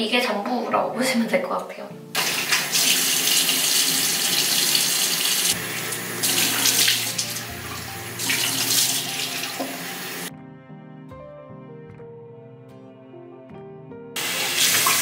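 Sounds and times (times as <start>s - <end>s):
tap running into sink: 2.2s - 10.2s, 14.2s - 15.0s
water splashing on face: 6.2s - 7.5s.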